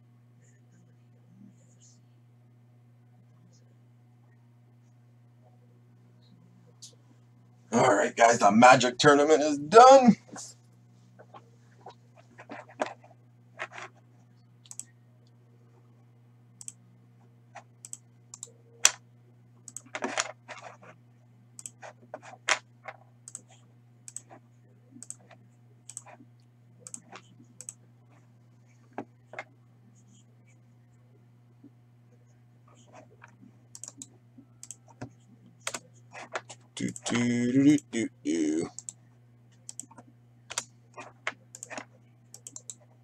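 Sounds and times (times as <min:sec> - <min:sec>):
low electrical hum: 0:00.0 - 0:43.0
keyboard typing: 0:14.6 - 0:14.9, 0:17.8 - 0:19.0, 0:19.6 - 0:20.9, 0:21.6 - 0:24.4, 0:25.0 - 0:26.2, 0:26.8 - 0:27.8, 0:32.7 - 0:37.9, 0:39.6 - 0:42.9
mouse clicking: 0:14.6 - 0:14.9, 0:16.6 - 0:16.8, 0:17.8 - 0:19.0, 0:19.7 - 0:19.9, 0:21.6 - 0:22.0, 0:24.1 - 0:24.3, 0:25.0 - 0:25.3, 0:25.9 - 0:26.2, 0:26.8 - 0:27.8, 0:33.7 - 0:35.8, 0:39.6 - 0:40.7, 0:41.5 - 0:42.8.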